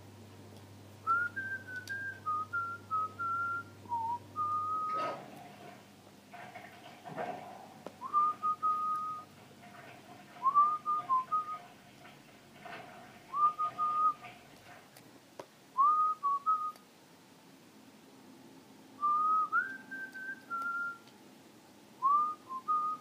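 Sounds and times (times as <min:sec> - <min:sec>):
person whistling high note: 0:19.0 - 0:21.0.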